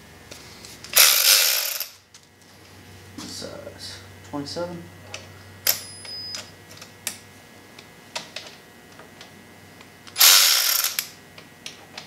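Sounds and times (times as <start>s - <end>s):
ratchet wrench ratcheting: 0.9s - 2.0s, 10.2s - 11.2s.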